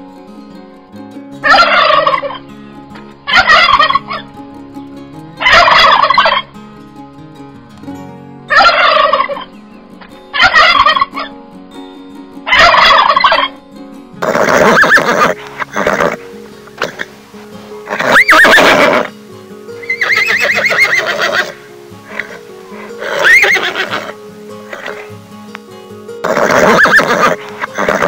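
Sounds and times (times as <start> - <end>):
turkeys gobbling: 1.4 - 2.4, 3.3 - 4.2, 5.4 - 6.4, 8.5 - 9.5, 10.1 - 11.3, 12.4 - 13.6, 14.2 - 19.1, 19.8 - 25.1, 26.2 - 28.0.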